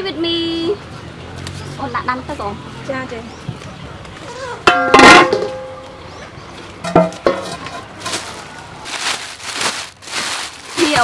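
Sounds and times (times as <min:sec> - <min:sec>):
metal pot clanging: 0:04.7 - 0:05.7, 0:06.8 - 0:07.9
soft rustling: 0:08.0 - 0:11.0.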